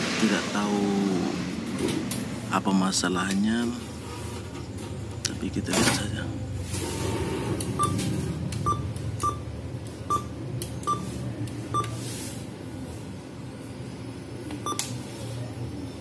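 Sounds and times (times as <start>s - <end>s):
steady low hum: 0.0s - 16.0s
keypad beeps: 3.1s - 3.4s, 7.8s - 8.0s, 8.6s - 9.5s, 10.1s - 11.1s, 11.7s - 12.0s, 14.6s - 14.9s.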